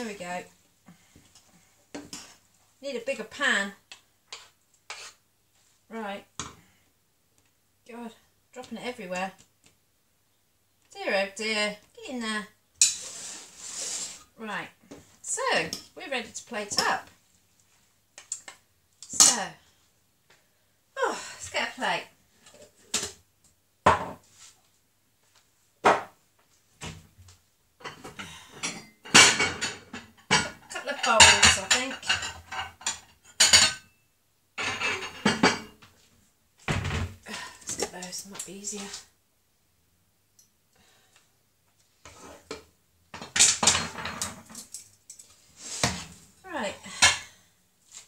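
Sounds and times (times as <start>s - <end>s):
crockery clattering: 27.8s - 33.9s, 34.6s - 35.8s.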